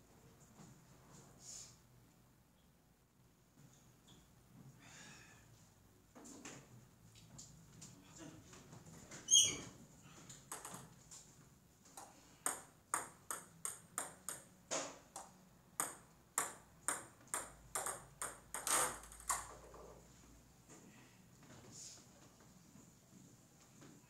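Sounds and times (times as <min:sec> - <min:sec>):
table tennis ball clicks: 0:10.5 - 0:10.9, 0:12.0 - 0:19.6.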